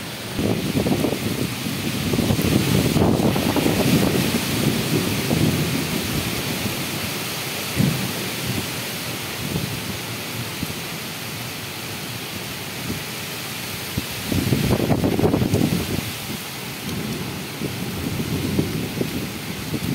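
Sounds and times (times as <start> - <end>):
low rumbling thunder: 0.0 - 7.0, 7.7 - 8.7, 14.3 - 19.9
steady rain hiss: 0.0 - 19.9
wind gusts thrashing trees: 0.0 - 19.9.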